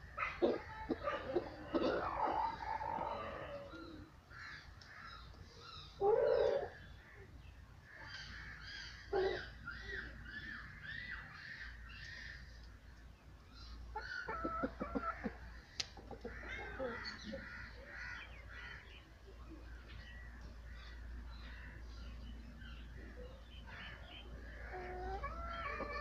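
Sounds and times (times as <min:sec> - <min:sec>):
birds chirping: 0:00.1 - 0:26.0
chickens clucking: 0:00.2 - 0:04.2, 0:13.7 - 0:26.0.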